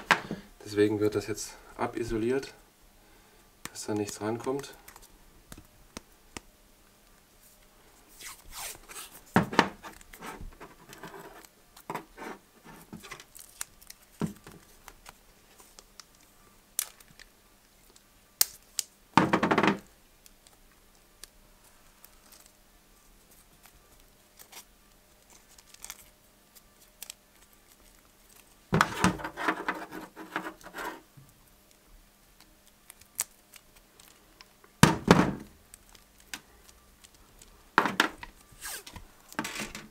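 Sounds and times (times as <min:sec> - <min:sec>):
tape pulled off roll and torn: 0:38.2 - 0:39.9.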